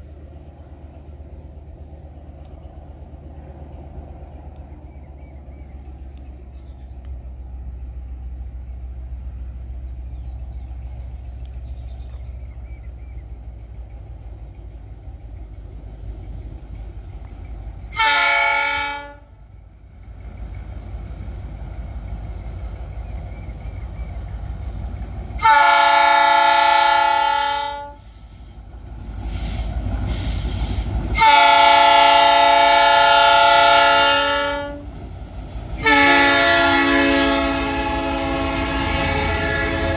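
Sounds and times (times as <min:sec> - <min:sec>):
diesel locomotive engine rumble: 0:00.0 - 0:39.9
multi-tone air horn blasts: 0:18.0 - 0:19.3, 0:25.4 - 0:28.0, 0:31.2 - 0:34.8, 0:35.8 - 0:39.9.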